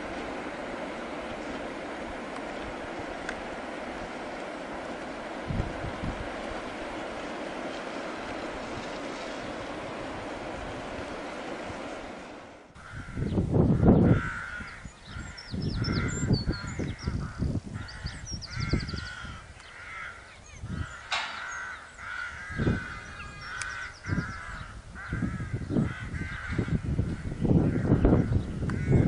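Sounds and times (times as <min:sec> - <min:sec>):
wind rushing: 0:00.0 - 0:19.5, 0:20.6 - 0:29.0
birds calling: 0:00.0 - 0:29.0
wind buffeting microphone: 0:00.0 - 0:29.0
small birds chirping: 0:13.2 - 0:28.8.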